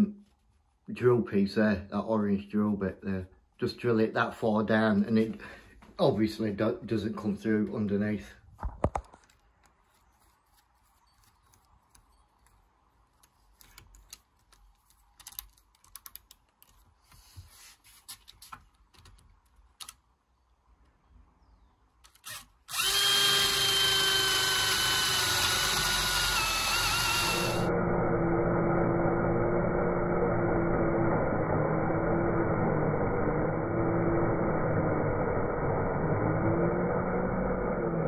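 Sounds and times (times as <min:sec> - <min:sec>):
hand drill boring into wood: 0:22.0 - 0:27.7.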